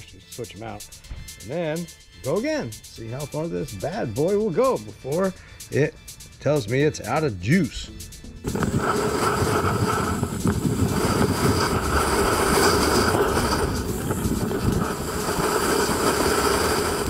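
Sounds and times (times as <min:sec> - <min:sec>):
tyre and wind rumble: 0:08.4 - 0:17.0.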